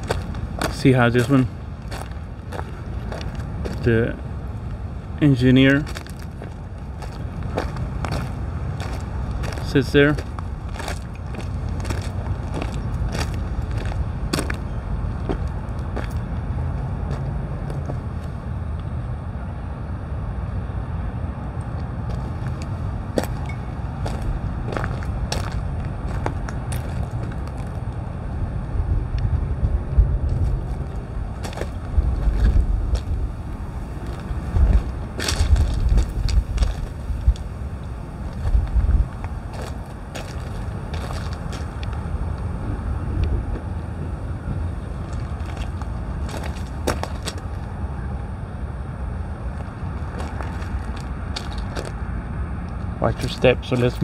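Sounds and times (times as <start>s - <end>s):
footsteps crunching on gravel: 0.0s - 4.0s, 5.6s - 16.4s, 22.1s - 27.9s, 30.2s - 42.1s, 44.9s - 47.7s, 49.5s - 52.0s
steady low rumble: 0.0s - 54.0s
wind buffeting microphone: 21.9s - 47.9s.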